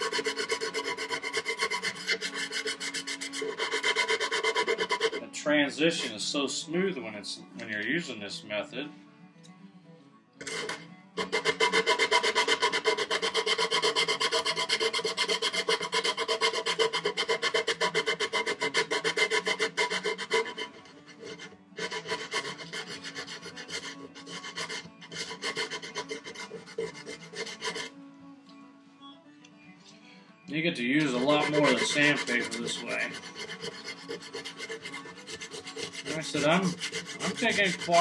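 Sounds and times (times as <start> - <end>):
sandpaper rubbing wood: 0.0 - 5.2, 10.5 - 27.9, 31.0 - 38.0.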